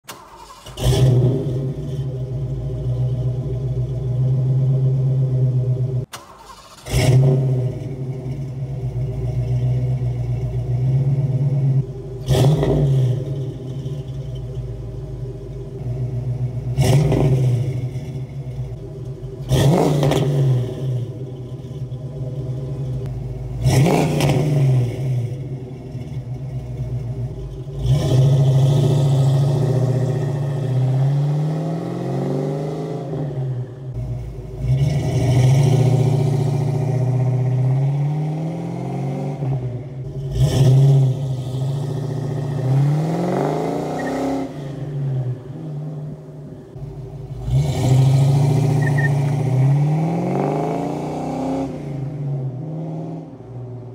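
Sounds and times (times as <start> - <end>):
car engine revving: 0.0 - 53.9
car accelerating and shifting: 0.1 - 53.9.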